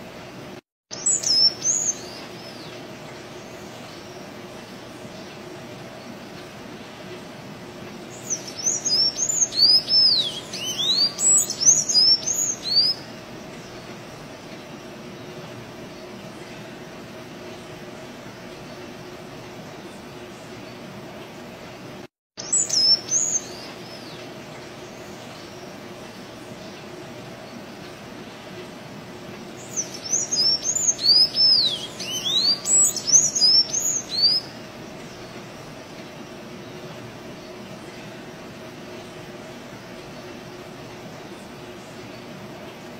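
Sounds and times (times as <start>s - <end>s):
background hiss: 0.0s - 42.9s
bird singing high whistled notes: 0.9s - 2.7s, 8.2s - 13.1s, 22.4s - 24.1s, 29.6s - 34.6s.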